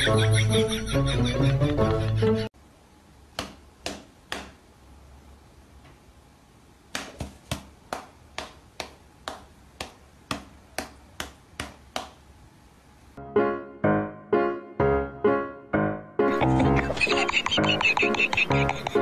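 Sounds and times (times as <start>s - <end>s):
music: 0.0s - 2.5s, 13.2s - 19.0s
cat paw slapping a hand: 6.9s - 12.2s.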